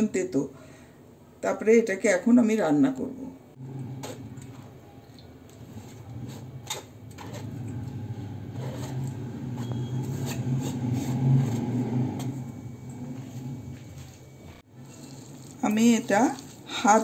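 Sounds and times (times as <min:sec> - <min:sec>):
steel plate scraping steel bowl: 0:05.5 - 0:13.4, 0:14.8 - 0:17.0.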